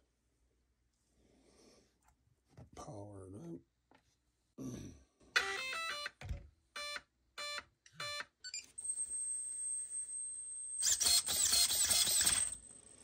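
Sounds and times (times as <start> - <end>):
motor whirring burst: 10.8 - 12.6.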